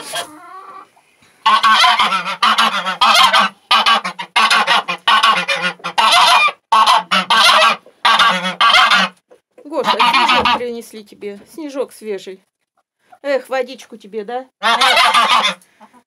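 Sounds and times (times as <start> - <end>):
geese honking: 0.0 - 9.2, 9.8 - 10.6, 14.6 - 16.0.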